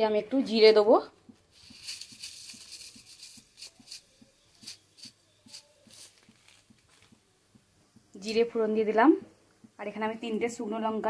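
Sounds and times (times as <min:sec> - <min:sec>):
sharp crackling pops: 0:01.3 - 0:10.4
seeds sizzling in hot oil: 0:01.5 - 0:08.9.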